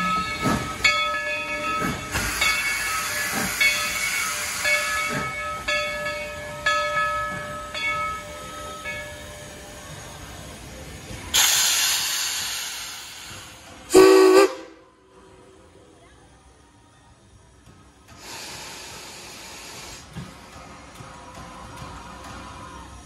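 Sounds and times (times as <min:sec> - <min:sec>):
locomotive bell ringing: 0:00.0 - 0:10.6
steam hiss: 0:01.7 - 0:05.7, 0:09.6 - 0:14.7, 0:18.1 - 0:20.8
steam whistle blast: 0:13.9 - 0:14.8.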